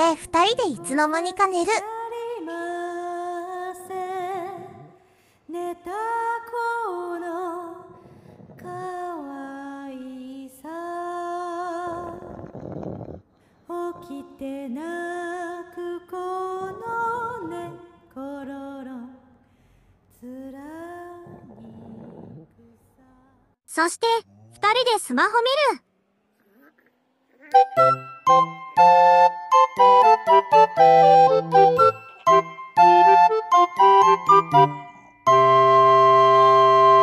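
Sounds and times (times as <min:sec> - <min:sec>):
person humming slow melody: 0:27.4 - 0:37.0.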